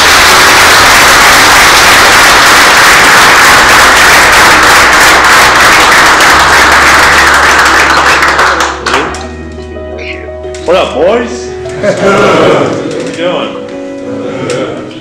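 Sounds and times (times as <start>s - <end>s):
people applauding: 0.0s - 9.3s.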